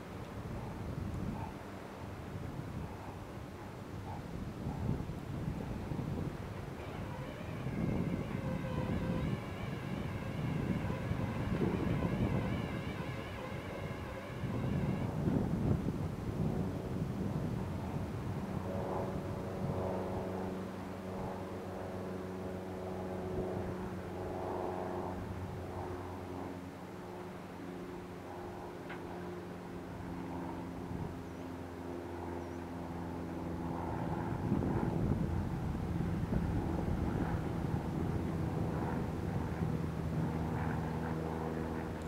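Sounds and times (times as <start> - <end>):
boat engine humming: 6.2 - 15.2.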